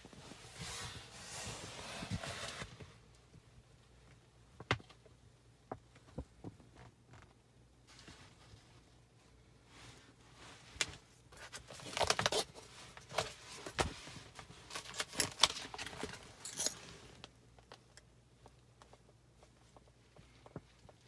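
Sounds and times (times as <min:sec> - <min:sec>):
bag handling clicks and rustles: 0:10.8 - 0:18.0.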